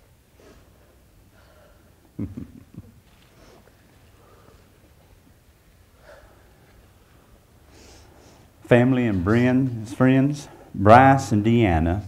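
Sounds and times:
soft intake of breath: 3.3s - 4.9s, 5.9s - 8.6s
person speaking: 8.6s - 12.0s.

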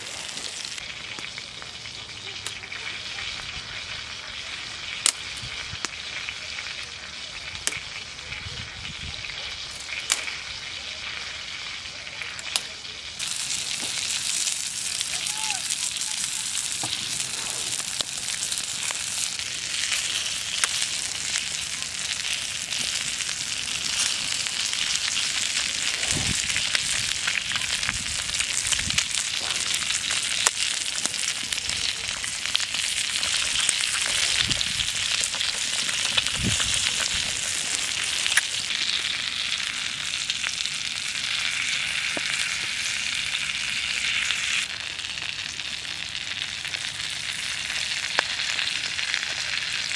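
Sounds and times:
food sizzling in a pan: 0.0s - 49.9s.

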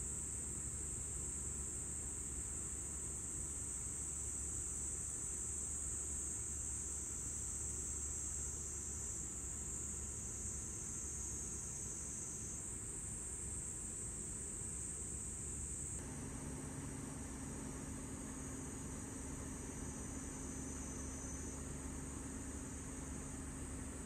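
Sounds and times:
insect chorus: 0.0s - 24.0s
cooler compressor humming: 16.0s - 24.0s.

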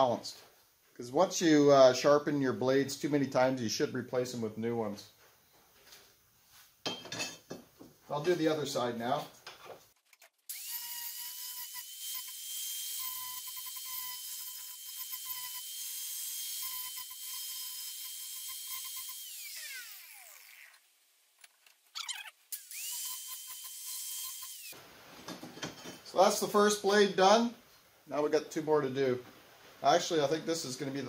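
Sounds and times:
angle grinder grinding metal: 10.5s - 20.8s, 22.0s - 24.8s.

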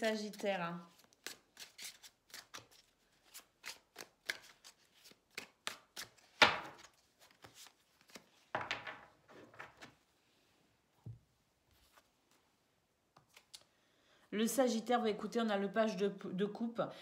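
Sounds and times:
cards being shuffled: 0.9s - 8.7s, 13.2s - 13.7s.

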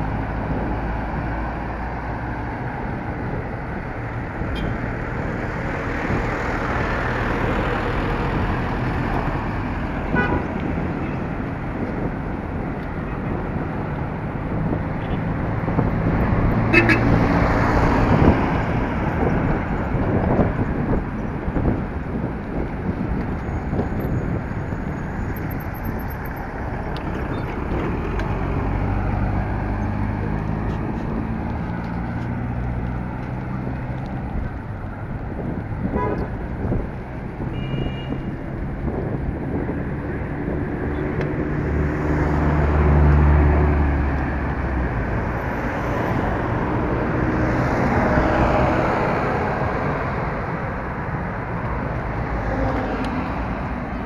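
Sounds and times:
car engines passing: 0.0s - 54.0s
wind rumble on microphone: 0.0s - 54.0s
car horns tooting: 10.1s - 11.2s, 16.7s - 17.2s, 35.9s - 36.3s, 37.5s - 38.4s.

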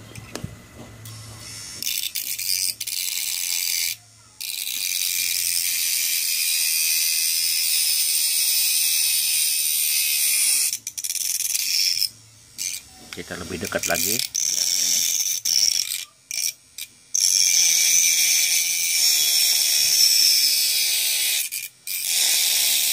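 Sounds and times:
mini grinder grinding nails: 1.4s - 22.9s.

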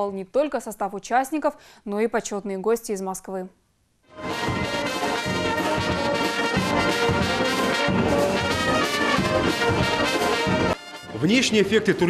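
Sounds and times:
brass band playing: 4.1s - 12.0s.

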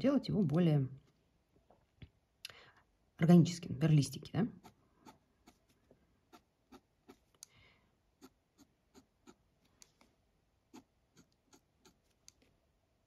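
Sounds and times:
pen scratching on paper: 4.6s - 7.3s, 8.2s - 9.5s, 10.6s - 12.2s.

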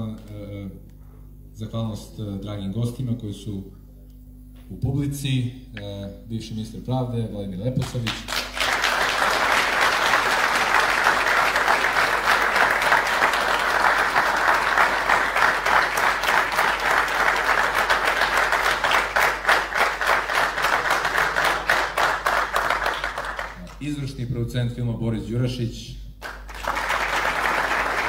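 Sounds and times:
audience applauding: 7.8s - 23.8s, 26.2s - 28.0s.

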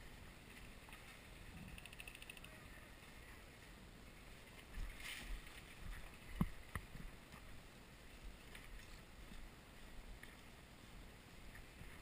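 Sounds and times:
sharp clicks: 1.7s - 2.6s.

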